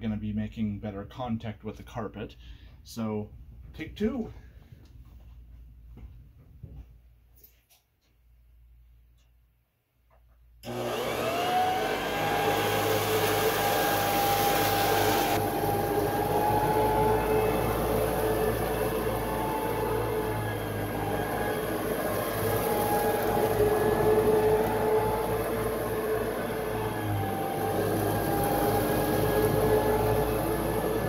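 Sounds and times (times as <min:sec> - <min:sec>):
vacuum cleaner motor whine: 0:10.6 - 0:31.0.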